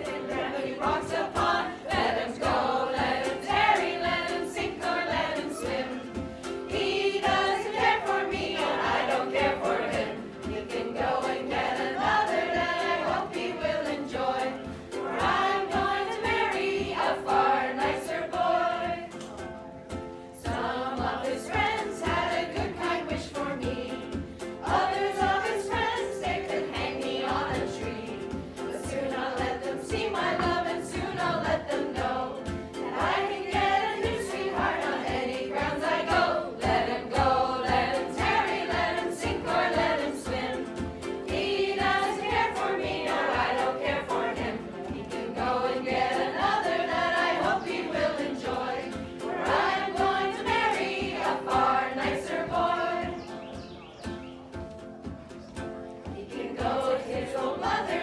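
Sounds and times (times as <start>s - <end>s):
choir singing: 0.0s - 19.4s, 20.4s - 53.7s, 56.0s - 58.0s
strummed stringed instrument: 0.0s - 58.0s.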